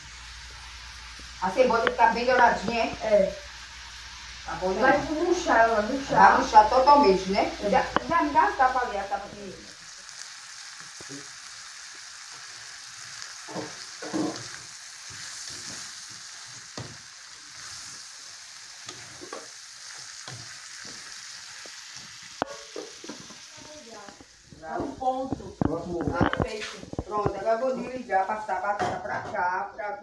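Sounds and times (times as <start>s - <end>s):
onions and bacon sizzling in pan: 0.0s - 30.0s
spatula scraping pan: 13.4s - 17.0s.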